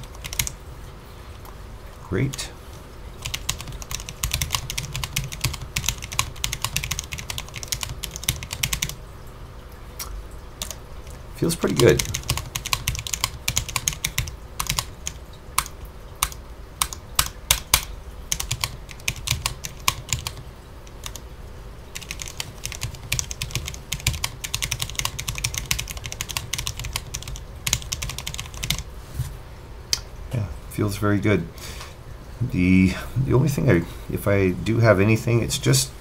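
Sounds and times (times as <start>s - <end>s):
fast typing on mechanical keyboard: 0.0s - 0.6s, 3.2s - 9.0s, 10.6s - 10.8s, 11.6s - 21.2s, 21.9s - 28.9s.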